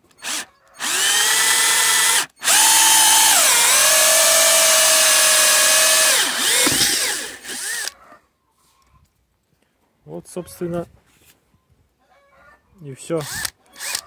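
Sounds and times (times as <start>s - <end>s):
cordless drill motor whine: 0.2s - 8.0s, 13.2s - 14.0s.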